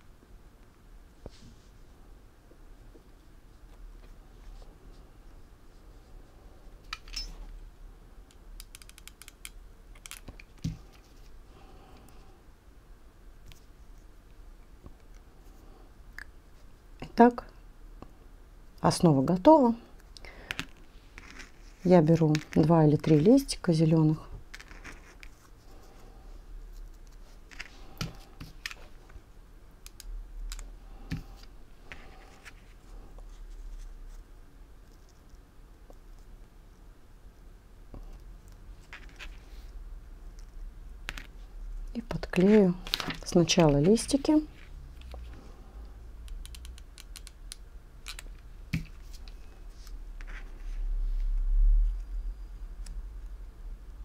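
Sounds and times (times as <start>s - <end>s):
low rumble: 50.6s - 54.0s.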